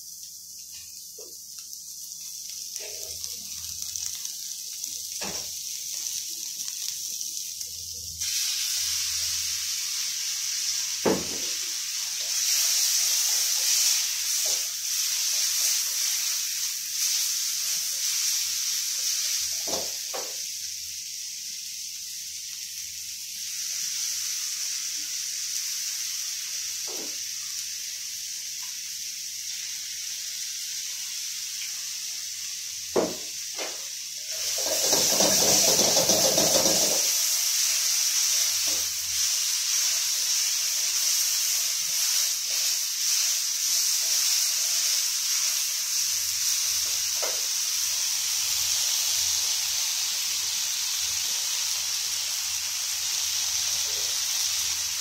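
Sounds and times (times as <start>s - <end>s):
stir-fry sizzling in a wok: 0.0s - 55.0s
utensil knocking on wok: 34.4s - 37.1s.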